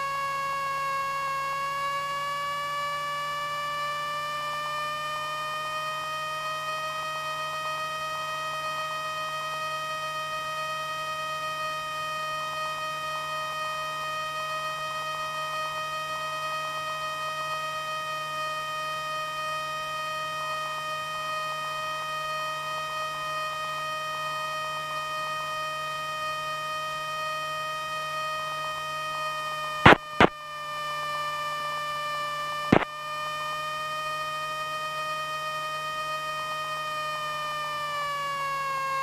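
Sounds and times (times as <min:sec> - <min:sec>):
high whine on intercom audio: 0:29.7 - 0:30.5, 0:32.1 - 0:33.3
sharp clicks: 0:29.9 - 0:30.3.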